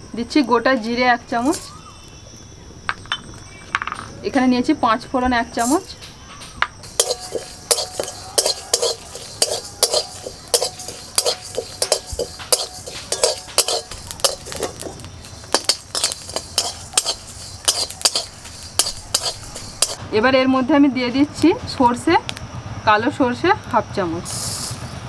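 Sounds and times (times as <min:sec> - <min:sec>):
metal spatula scraping pan: 0:01.4 - 0:01.7, 0:06.8 - 0:20.0.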